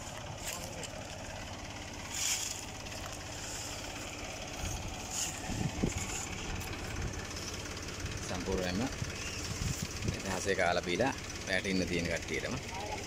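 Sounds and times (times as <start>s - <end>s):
palm fronds rustling: 0.0s - 8.2s, 9.1s - 10.2s
low engine-like hum: 0.0s - 13.0s.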